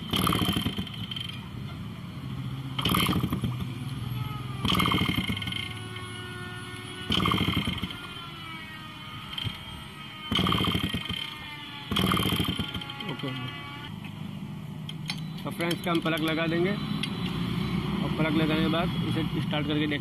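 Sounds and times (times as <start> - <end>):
engine turning over: 0.0 - 1.6, 2.3 - 14.0.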